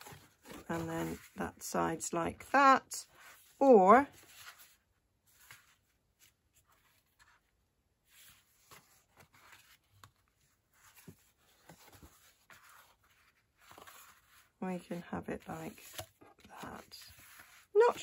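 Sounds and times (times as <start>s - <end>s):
paper rustling on wooden table: 8.1s - 14.6s, 15.6s - 18.0s.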